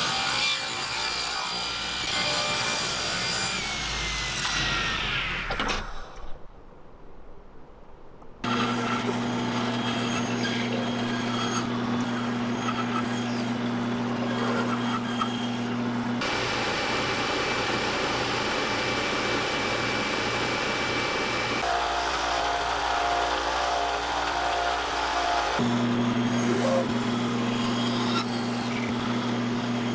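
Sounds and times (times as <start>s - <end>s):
band saw cutting wood: 0.0s - 5.5s, 8.4s - 29.9s
power tool high whine: 8.4s - 29.9s.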